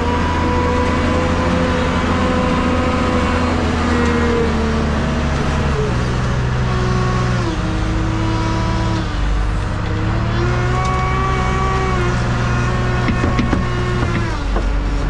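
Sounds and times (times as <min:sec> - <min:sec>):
diesel loader engine revving: 0:00.0 - 0:15.0
load clunks: 0:13.0 - 0:15.0.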